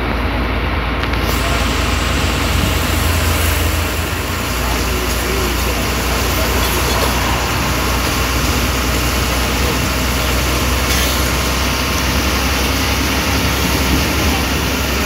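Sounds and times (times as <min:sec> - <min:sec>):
bus engine rumbling: 0:00.0 - 0:15.0
road and cabin noise: 0:00.0 - 0:15.0.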